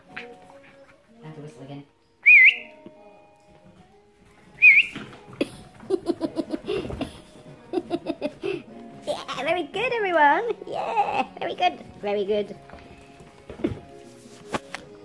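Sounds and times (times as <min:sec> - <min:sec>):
person whistling: 0:02.2 - 0:02.8, 0:04.6 - 0:05.1.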